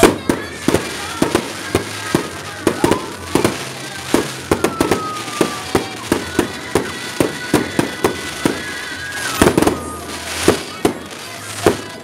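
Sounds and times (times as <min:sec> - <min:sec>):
fireworks banging: 0:00.0 - 0:12.0.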